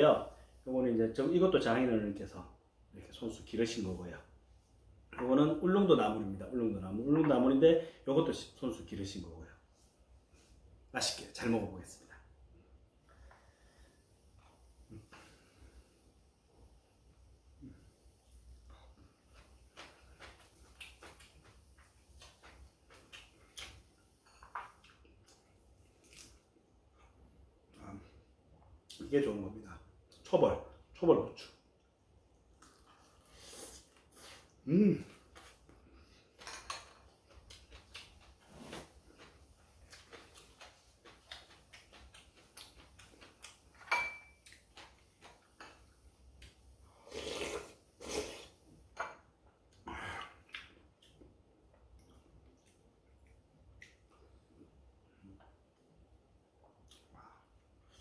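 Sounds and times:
chewing: 0:37.1 - 0:45.6.

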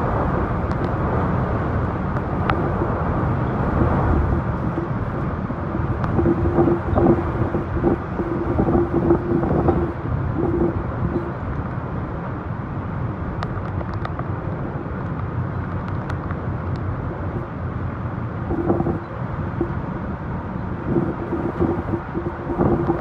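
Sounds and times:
strong wind buffeting microphone: 0:00.0 - 0:23.0
faint clicks: 0:13.4 - 0:14.3, 0:15.0 - 0:16.9.

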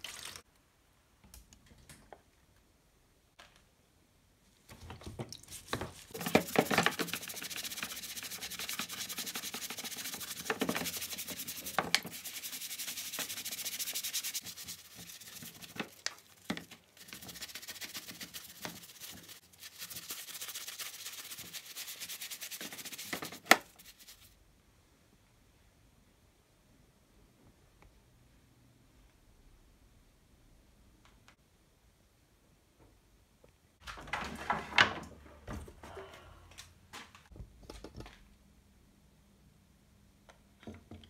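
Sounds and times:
stiff brush scrubbing plastic: 0:05.3 - 0:24.4.

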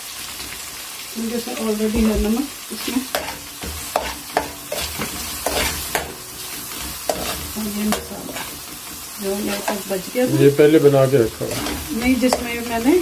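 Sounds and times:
onions sizzling in oil: 0:00.0 - 0:13.0
metal spoon scraping pan: 0:03.1 - 0:10.6, 0:11.2 - 0:13.0.

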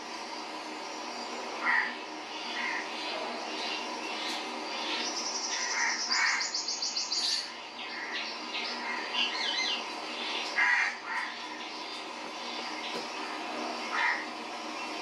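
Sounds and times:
birds chirping: 0:00.2 - 0:15.0
rapid high bird trill: 0:04.7 - 0:12.9.

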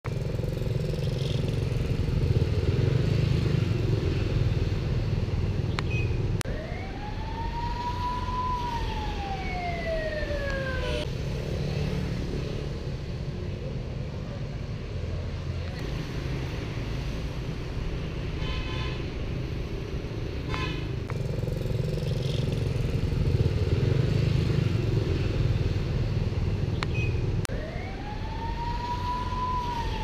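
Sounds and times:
road traffic rumble: 0:00.0 - 0:30.0
siren-like wail: 0:06.4 - 0:11.1, 0:27.5 - 0:30.0.

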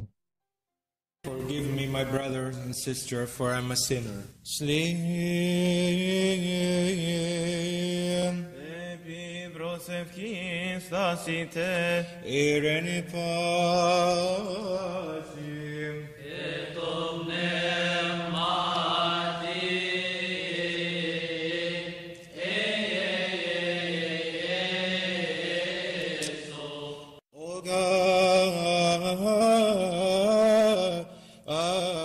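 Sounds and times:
man chanting a hymn: 0:01.2 - 0:19.6.

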